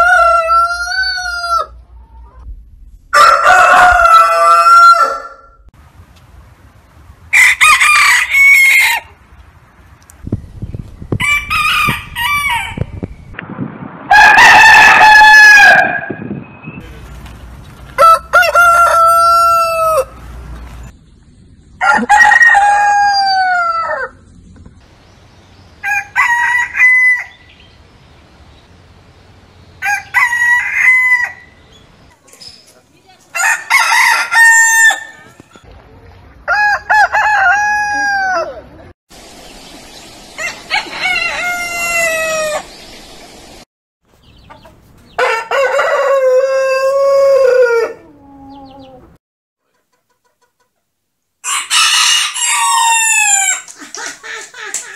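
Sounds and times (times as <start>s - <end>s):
roosters crowing: 0.0s - 2.4s, 3.1s - 5.7s, 7.3s - 9.2s, 11.2s - 13.0s, 14.1s - 16.3s, 17.9s - 20.4s, 21.8s - 24.2s, 25.8s - 27.8s, 29.7s - 31.8s, 33.3s - 35.6s, 36.4s - 38.7s, 40.3s - 42.8s, 45.1s - 49.2s, 51.4s - 54.9s.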